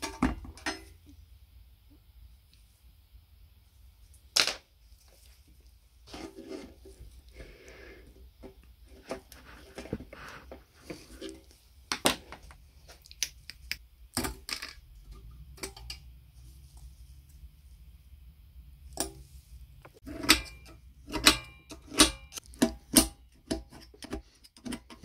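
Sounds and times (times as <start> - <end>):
tools scraping against metal: 20.0 - 25.0.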